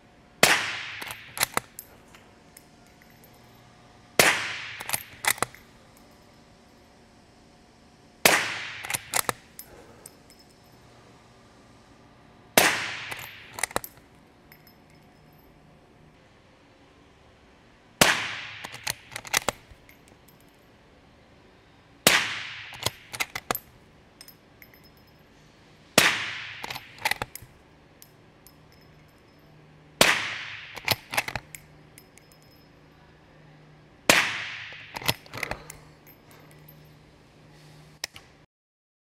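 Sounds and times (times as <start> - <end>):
suppressed rifle shots: 0.4 - 1.7, 4.2 - 5.4, 12.6 - 13.7, 30.0 - 31.1
rifle bolt clicking: 1.0 - 1.9, 4.6 - 5.6, 8.8 - 9.4, 13.1 - 14.0, 18.6 - 19.9, 22.7 - 23.6, 26.6 - 27.5, 30.5 - 32.3, 34.7 - 35.8.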